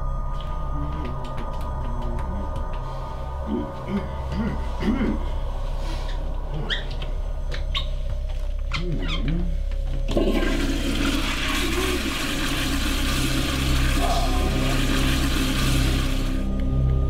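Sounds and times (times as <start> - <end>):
toilet flushing water rush: 10.1 - 16.5.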